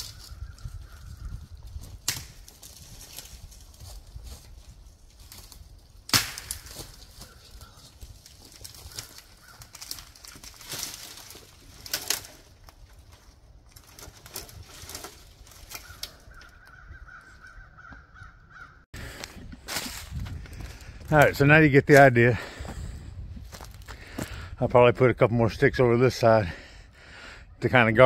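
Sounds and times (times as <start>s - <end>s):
dry leaves rustling underfoot: 0.0s - 16.6s, 19.1s - 21.0s, 23.4s - 23.9s
sticks cracking and snapping: 0.0s - 16.8s.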